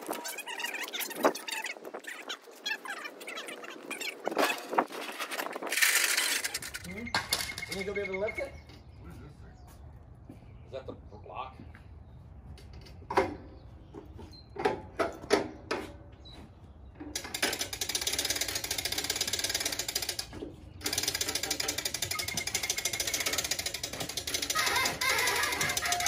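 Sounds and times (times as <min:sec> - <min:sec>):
winch ratchet clicking: 0:17.2 - 0:26.0.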